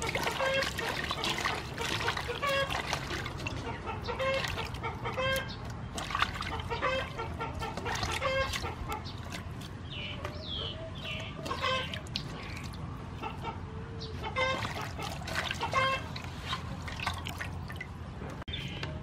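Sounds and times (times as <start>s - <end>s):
water sloshing in metal basin: 0.0s - 18.4s
bird calling: 3.5s - 16.6s.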